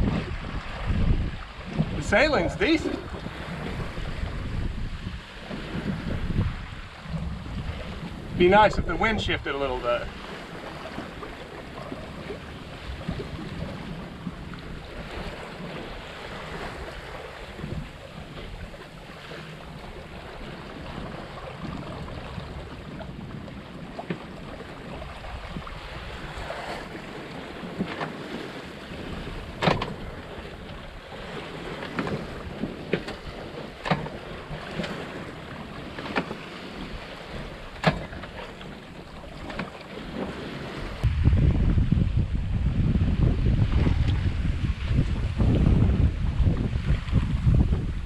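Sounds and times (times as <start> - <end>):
water splashing along hull: 0.0 - 48.0
wind buffeting microphone: 0.0 - 48.0
sharp knocks: 29.6 - 30.0.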